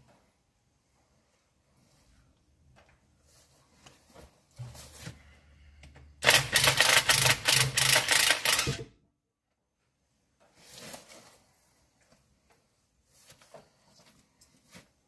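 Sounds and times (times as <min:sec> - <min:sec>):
impact wrench hammering: 0:06.2 - 0:08.9.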